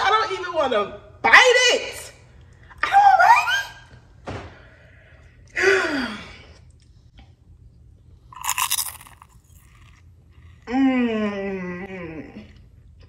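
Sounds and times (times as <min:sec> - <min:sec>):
person chewing: 0:08.2 - 0:10.6.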